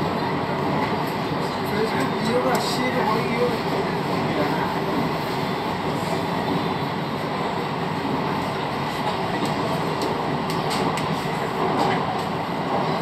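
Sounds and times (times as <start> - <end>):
train wheels rumbling on rail: 0.0 - 13.0.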